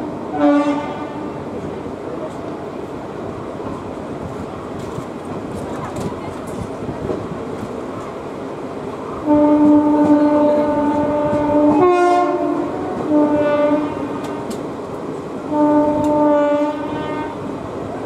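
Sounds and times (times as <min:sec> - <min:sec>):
moving train running noise: 0:00.0 - 0:18.0
locomotive horn blasts: 0:00.3 - 0:01.4, 0:09.2 - 0:14.4, 0:15.5 - 0:17.5.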